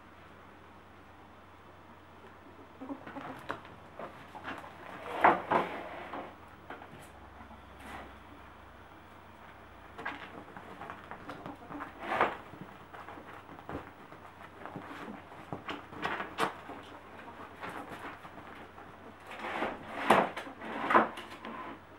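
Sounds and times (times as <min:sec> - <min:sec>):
ferrets scuffling on fabric: 0:09.9 - 0:20.8.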